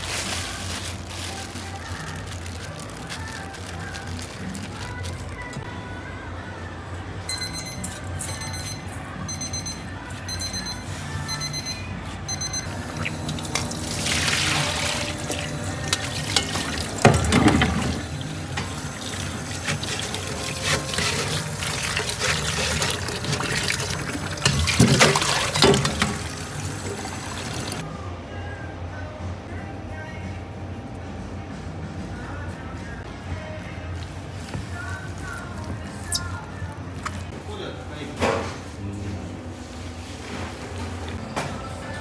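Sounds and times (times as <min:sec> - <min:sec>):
background music: 0:00.0 - 0:37.4
high repeated beeps: 0:07.3 - 0:12.7
water running from a tap: 0:12.9 - 0:27.8.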